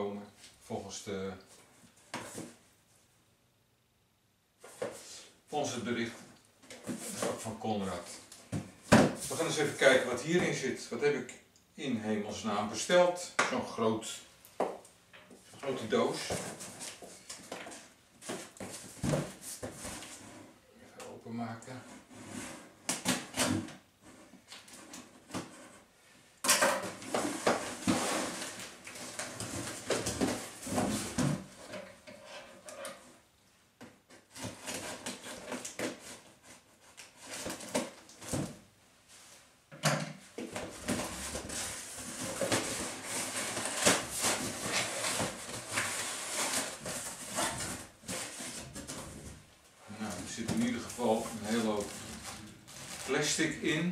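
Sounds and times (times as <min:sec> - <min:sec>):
cardboard rustling and scraping: 0:06.1 - 0:10.6, 0:15.6 - 0:20.6, 0:26.8 - 0:33.2, 0:34.1 - 0:38.6, 0:40.3 - 0:53.9.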